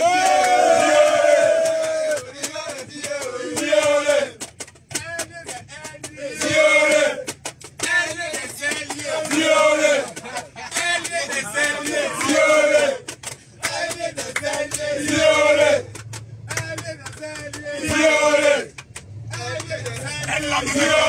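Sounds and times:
group of men chanting: 0:00.0 - 0:04.4, 0:05.1 - 0:21.0.

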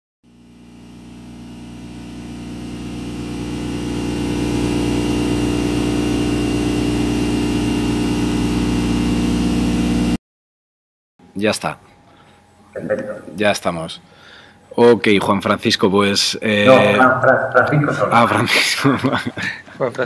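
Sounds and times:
low electronic drone: 0:00.4 - 0:10.2.

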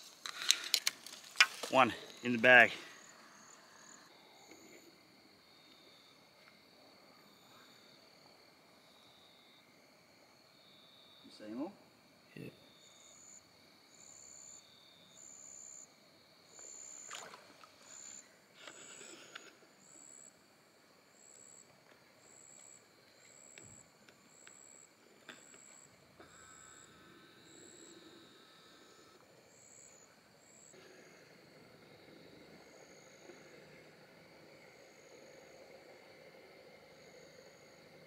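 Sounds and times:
insect chirping: 0:00.0 - 0:38.0
net splashing in shallow water: 0:17.0 - 0:17.9.

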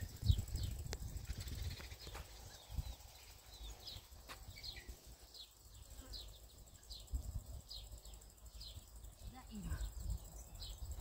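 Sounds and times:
low wind rumble: 0:00.0 - 0:05.2
small bird chirping: 0:00.0 - 0:11.0.

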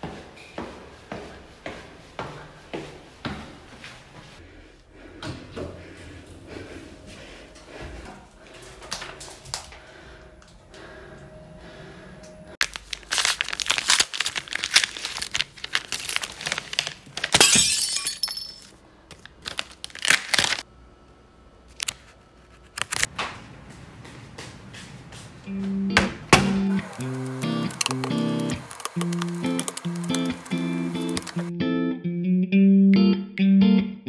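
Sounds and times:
paper rustling: 0:12.6 - 0:17.4, 0:21.7 - 0:23.2, 0:26.8 - 0:31.5
paper wrapper tearing: 0:12.6 - 0:17.4, 0:19.1 - 0:20.6, 0:22.6 - 0:23.1, 0:26.8 - 0:31.5.

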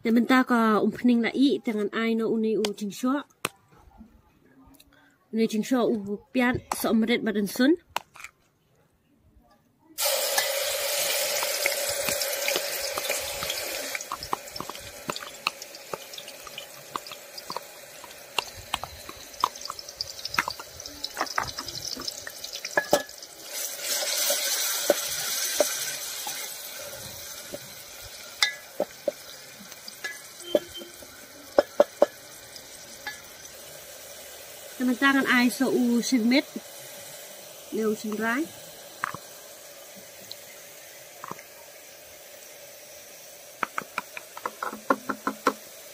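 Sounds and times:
onions sizzling in hot oil: 0:10.0 - 0:45.9.

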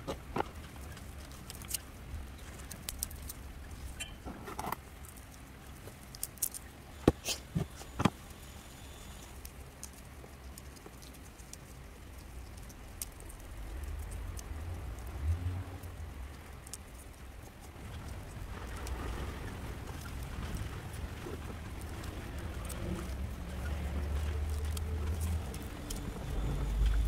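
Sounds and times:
plant stems clicking and snapping: 0:00.0 - 0:01.9, 0:02.5 - 0:05.4, 0:06.0 - 0:07.4, 0:20.0 - 0:27.0.

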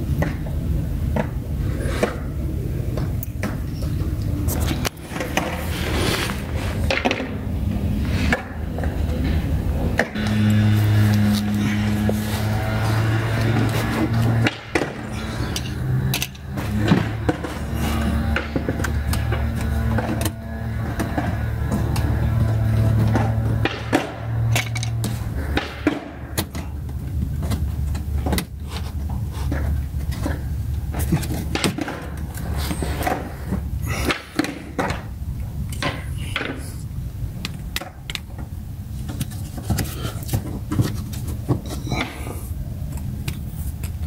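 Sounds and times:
steady low hum: 0:00.0 - 0:44.0.

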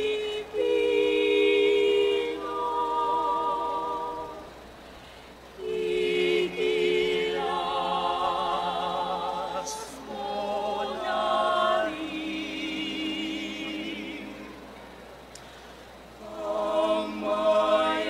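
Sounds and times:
mixed choir singing: 0:00.0 - 0:04.8, 0:05.5 - 0:15.0, 0:16.1 - 0:18.0
short hiss: 0:04.6 - 0:05.6, 0:14.8 - 0:16.1.

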